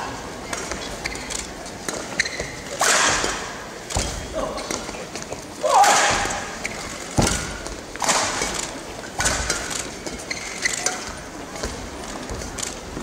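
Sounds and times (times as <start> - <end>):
shoe squeaks and footwork: 0.9 - 2.8, 6.6 - 7.6, 9.9 - 11.3
racket striking shuttlecock: 1.8 - 4.2, 9.2 - 9.7.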